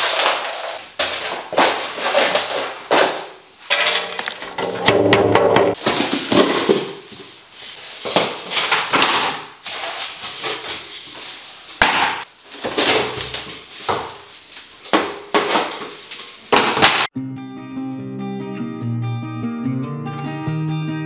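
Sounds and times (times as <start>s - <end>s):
demolition knocks and scraping: 0.0s - 7.4s.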